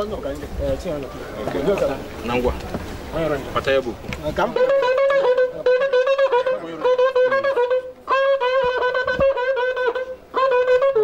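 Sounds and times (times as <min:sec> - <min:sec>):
wind instrument playing fast notes: 0:04.4 - 0:11.0.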